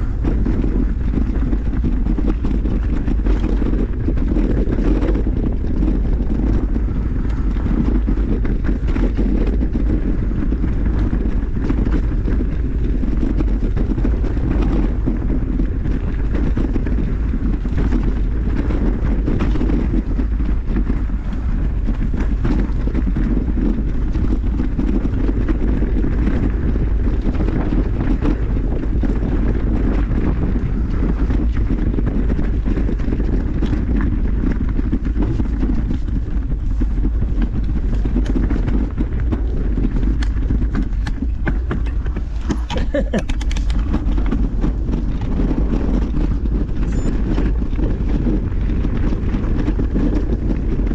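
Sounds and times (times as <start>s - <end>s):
wind rushing over microphone: 0.0s - 50.9s.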